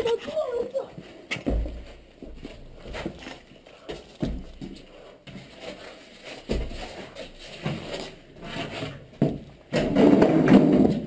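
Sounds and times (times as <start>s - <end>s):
footsteps on concrete: 0.0s - 9.9s.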